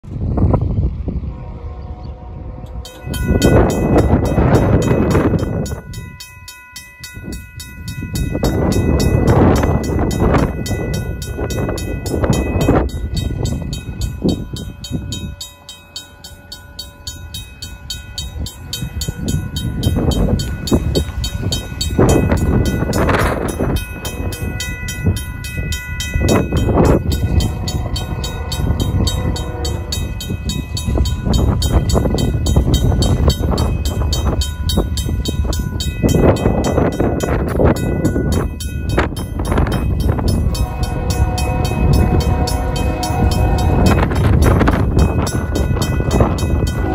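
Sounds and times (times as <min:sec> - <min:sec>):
railroad crossing bell ringing: 0:01.5 - 0:46.9
heavy low rumbling: 0:17.0 - 0:46.9.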